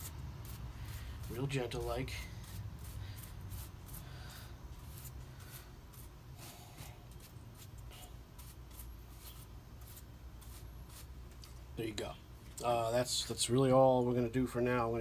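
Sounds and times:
paintbrush brushing strokes: 0.0s - 11.5s.

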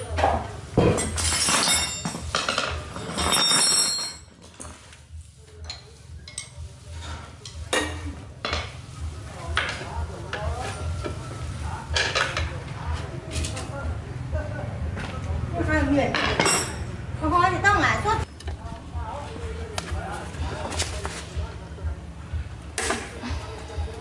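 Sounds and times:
metal clinking and scraping: 0.8s - 8.8s.

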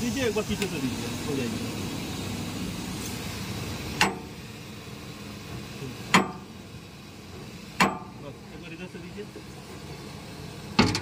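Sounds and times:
steady background hiss: 0.0s - 10.8s.

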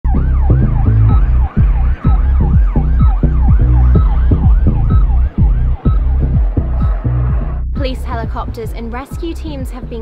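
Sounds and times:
siren yelping: 0.1s - 7.7s
music with heavy bass beat: 0.1s - 10.0s.

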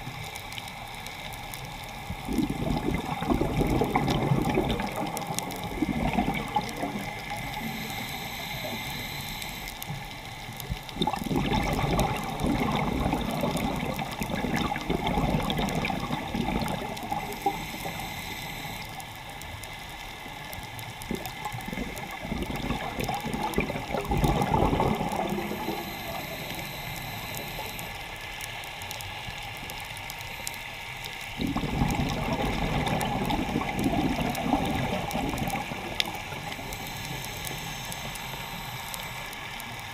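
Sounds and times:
scuba regulator bubbles: 0.0s - 28.2s, 29.4s - 39.9s
watery hiss: 2.3s - 10.0s, 11.1s - 19.0s, 21.1s - 28.6s, 30.2s - 39.9s.

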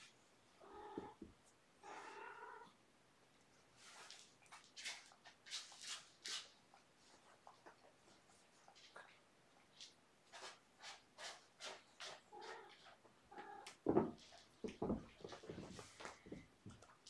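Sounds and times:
kitten rustling a toy on carpet: 3.6s - 13.0s, 14.2s - 17.0s.

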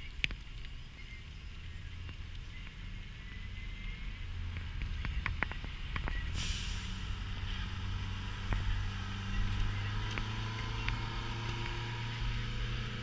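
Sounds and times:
car engine and road hum: 0.0s - 13.0s
tyre hiss on wet road: 5.6s - 8.8s.

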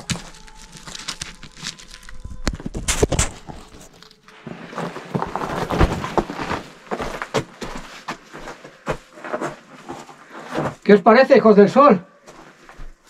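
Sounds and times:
footsteps crunching dry leaves: 0.0s - 9.0s.

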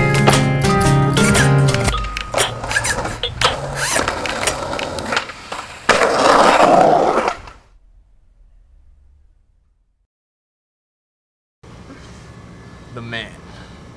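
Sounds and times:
skateboard wheels rolling on concrete: 1.2s - 7.8s
skateboard clacks: 1.6s - 7.6s
skateboard scraping: 2.4s - 7.7s.

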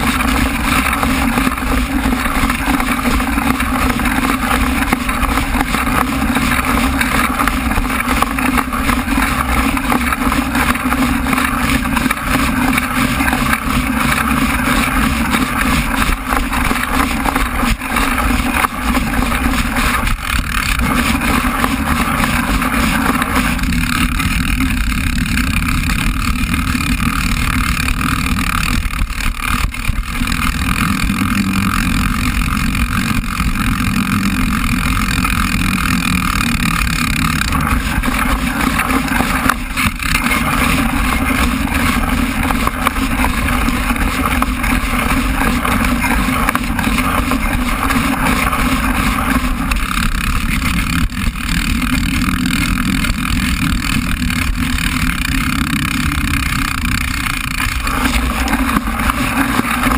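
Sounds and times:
bicycle rumbling over dirt: 0.0s - 59.9s.

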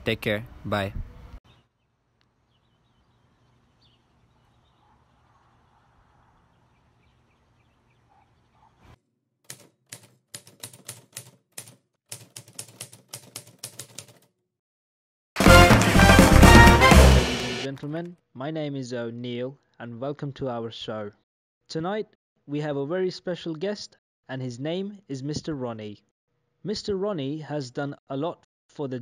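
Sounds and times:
typewriter key clacks: 9.5s - 14.3s
loud music: 15.4s - 17.7s.

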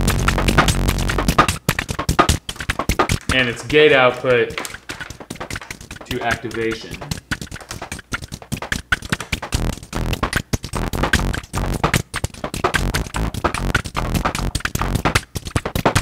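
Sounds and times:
synthesizer notes: 0.0s - 3.7s, 4.6s - 15.2s
rapid clicking percussion: 0.0s - 16.0s.

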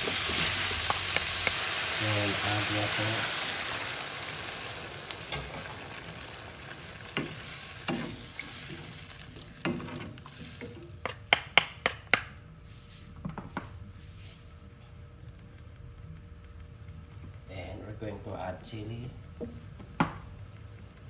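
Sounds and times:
wooden spatulas stirring food: 0.0s - 2.4s, 7.0s - 12.2s
water sizzling in hot pan: 0.0s - 11.1s.

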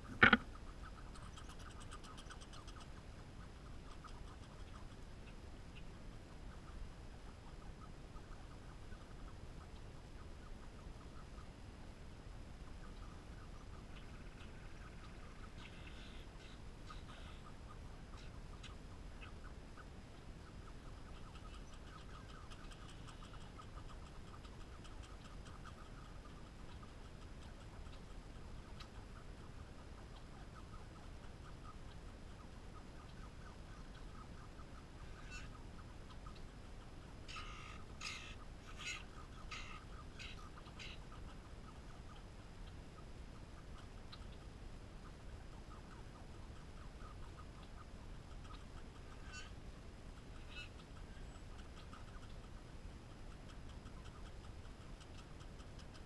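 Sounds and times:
squirrel cracking seeds: 0.0s - 2.7s
squirrel chewing seeds: 0.0s - 5.4s, 20.8s - 56.0s
low background hum: 0.0s - 56.0s
sharp loud knock: 0.1s - 0.4s.

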